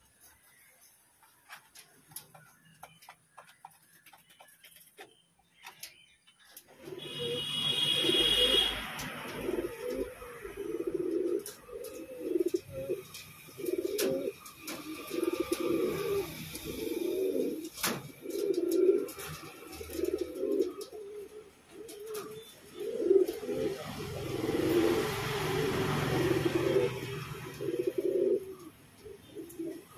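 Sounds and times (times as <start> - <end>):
pigeon cooing: 6.8 - 29.9.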